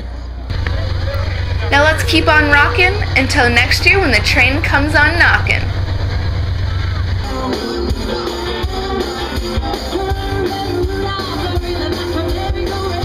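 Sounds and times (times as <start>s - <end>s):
live rock band playing: 7.1s - 13.0s
person singing long held notes: 7.2s - 13.0s.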